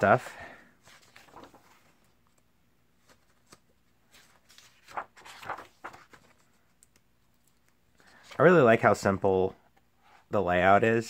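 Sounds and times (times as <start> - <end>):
paper pages rustling: 0.8 - 8.5.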